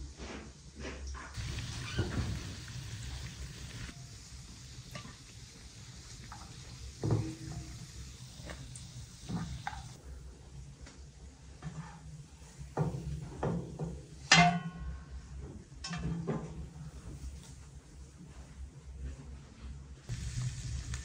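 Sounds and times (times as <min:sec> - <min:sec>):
metal cookware clattering: 0:14.3 - 0:14.8.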